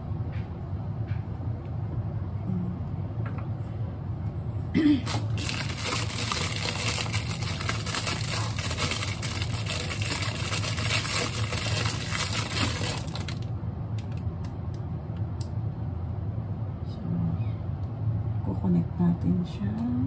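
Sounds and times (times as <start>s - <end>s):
steady low hum: 0.0s - 20.0s
plastic bag crinkling: 5.0s - 13.5s.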